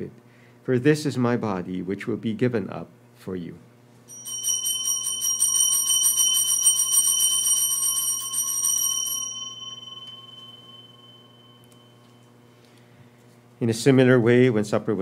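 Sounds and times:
bells ringing rapidly: 4.1s - 12.3s.

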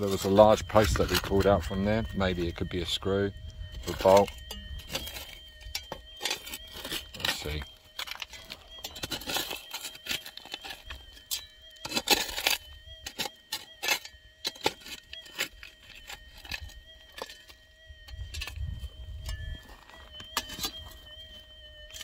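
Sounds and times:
metal detector tone: 0.0s - 22.0s
shovel scraping gravel: 3.9s - 17.5s.

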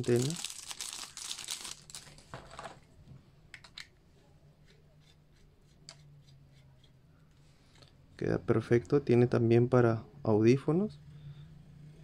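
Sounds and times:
plastic bag crinkling: 0.0s - 2.8s.

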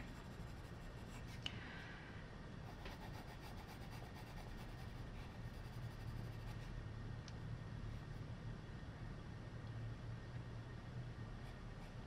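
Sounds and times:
pencil rubbing on paper: 0.0s - 1.4s, 2.7s - 6.7s
steady low hum: 0.0s - 12.0s.

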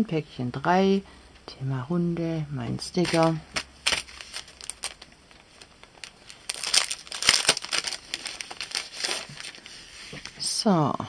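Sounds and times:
cellophane bag crinkling: 3.0s - 9.7s.

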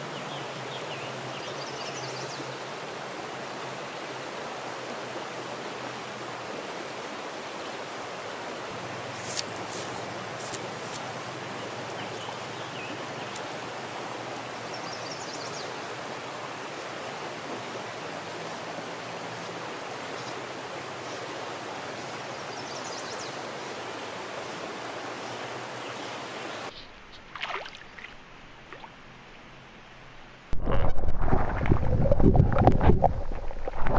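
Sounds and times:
river water flowing: 0.0s - 33.9s.

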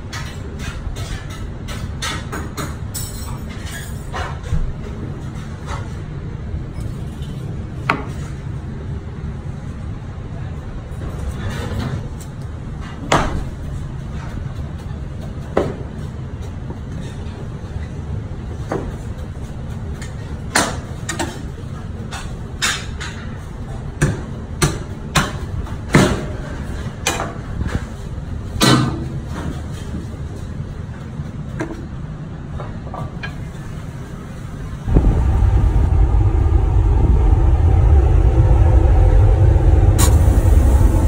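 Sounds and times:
low background drone: 34.7s - 41.0s
loud low rumble: 34.8s - 41.0s.

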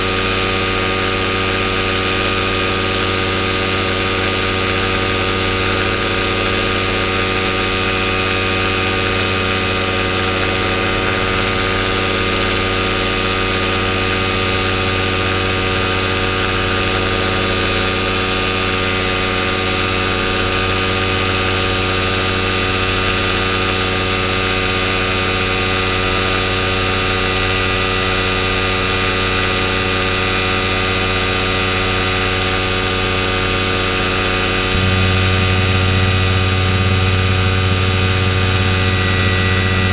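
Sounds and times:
paramotor engine running: 32.4s - 39.9s.

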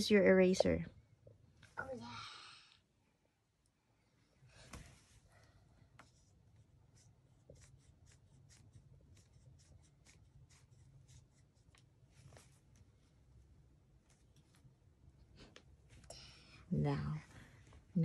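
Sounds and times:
low room hum: 0.0s - 18.0s
pencil scratching on paper: 6.0s - 11.8s.

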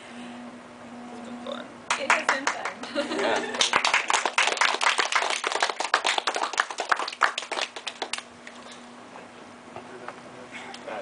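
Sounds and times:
audience applause: 1.9s - 8.2s.

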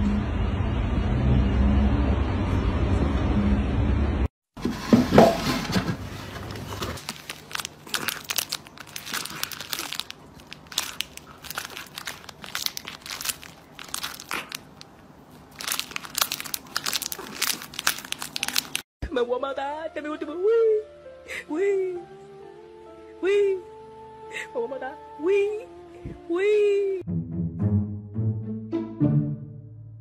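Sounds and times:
cat chewing crinkly plastic toy: 6.4s - 18.8s.

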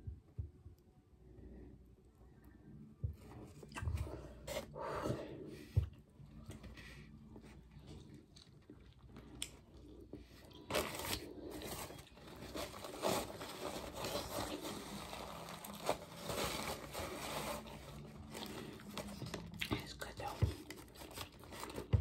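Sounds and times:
paper wrapper rustling and crinkling: 10.4s - 22.0s.

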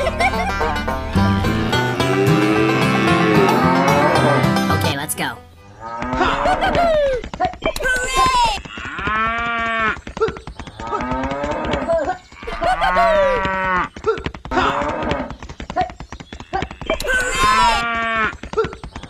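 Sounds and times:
cattle mooing: 1.6s - 4.6s.

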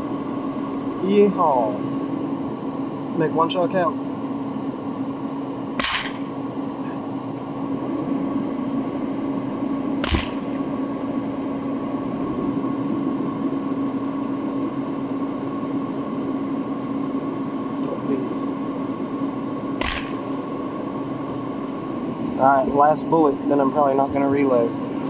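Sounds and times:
heater fan: 0.0s - 25.0s
truck engine idling hum: 0.0s - 25.0s
rifle shots: 5.8s - 6.3s, 10.0s - 10.5s, 19.8s - 20.2s.

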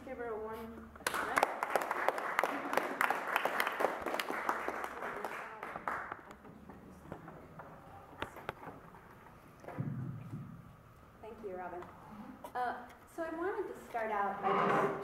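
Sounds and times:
audience applauding: 1.0s - 6.3s.

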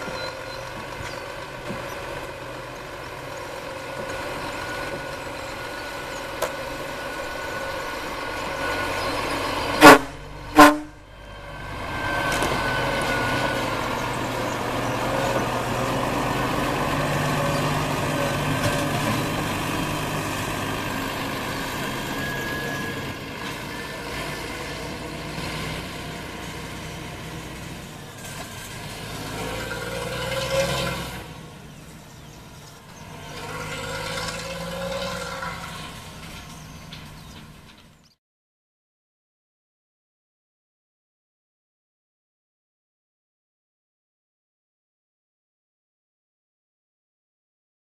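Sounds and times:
truck diesel engine running: 0.0s - 38.2s
air horn blasts: 9.7s - 11.2s.

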